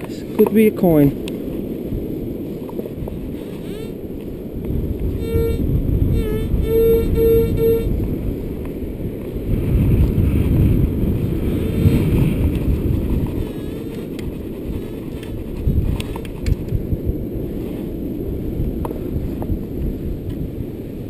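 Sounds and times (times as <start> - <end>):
wind buffeting microphone: 0.0 - 21.0
metal detector beeps: 5.2 - 7.9.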